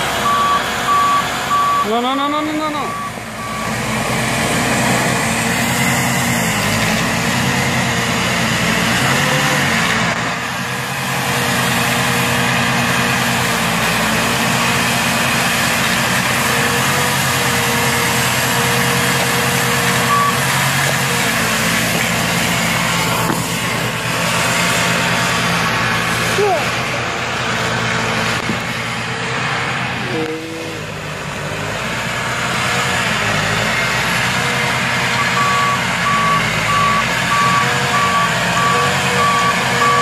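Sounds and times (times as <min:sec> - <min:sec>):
tractor diesel engine running: 0:00.0 - 0:40.0
snow blower throwing snow: 0:03.5 - 0:30.9.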